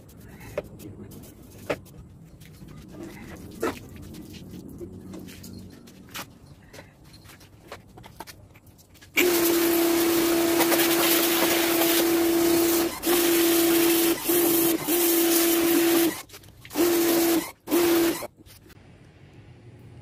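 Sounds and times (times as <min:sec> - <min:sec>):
water jet spraying on metal: 0:09.2 - 0:18.2
pressure washer motor hum: 0:09.2 - 0:18.4.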